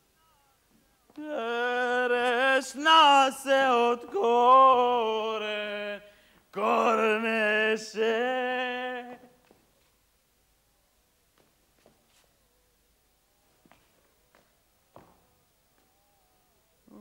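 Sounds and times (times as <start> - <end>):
person singing unaccompanied: 0.0 - 9.5.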